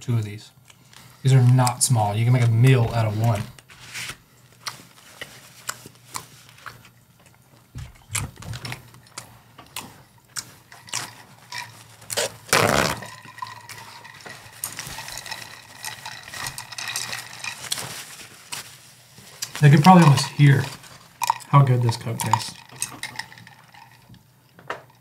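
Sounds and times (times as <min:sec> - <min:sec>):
faint steady hiss: 0:08.6 - 0:25.0
ice cubes clinking in glass: 0:10.8 - 0:18.2, 0:19.6 - 0:24.2.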